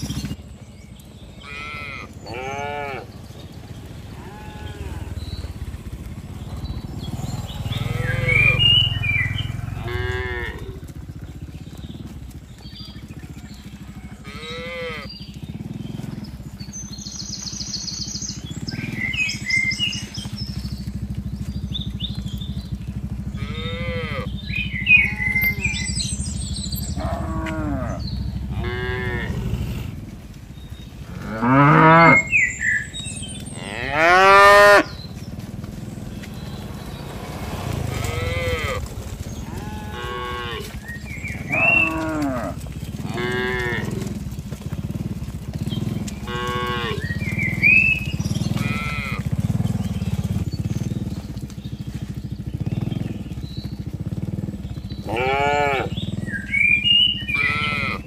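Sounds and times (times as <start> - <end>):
cattle mooing: 1.4 - 11.4, 14.2 - 15.2, 23.3 - 26.0, 26.8 - 30.1, 31.0 - 35.0, 37.0 - 44.4, 46.1 - 50.3, 55.0 - 58.0.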